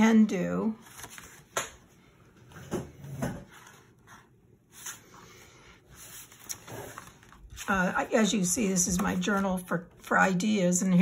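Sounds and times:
paper rustling: 0.8 - 1.9, 3.5 - 5.1, 5.9 - 10.2.

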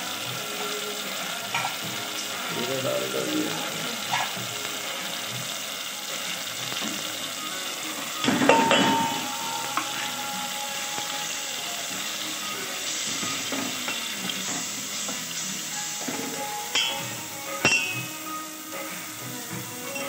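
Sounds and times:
tomatoes sizzling in hot oil: 0.0 - 20.0.

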